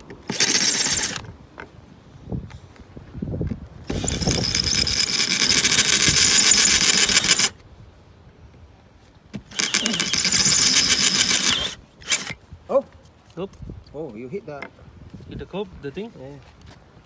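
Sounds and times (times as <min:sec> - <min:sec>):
drill whining into metal: 0:00.2 - 0:01.2, 0:03.9 - 0:07.5, 0:09.5 - 0:12.4.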